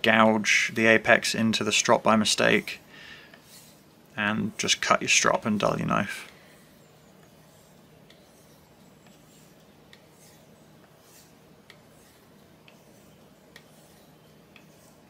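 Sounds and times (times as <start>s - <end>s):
knife stropping on leather: 3.4s - 15.0s.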